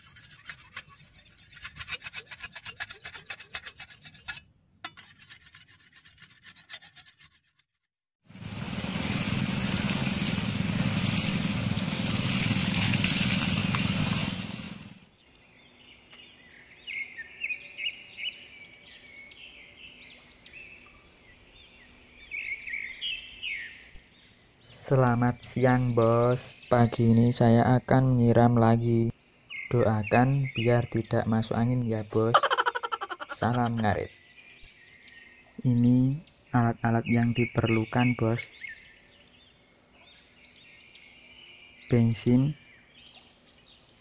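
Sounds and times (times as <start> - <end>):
scratchy rasping: 0.0 - 7.8
water spraying from hose: 8.3 - 15.0
birds chirping: 28.6 - 44.0.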